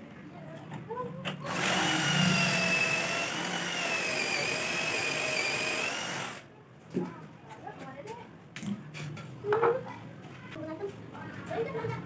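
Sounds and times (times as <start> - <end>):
cordless drill whining under load: 1.5 - 6.4.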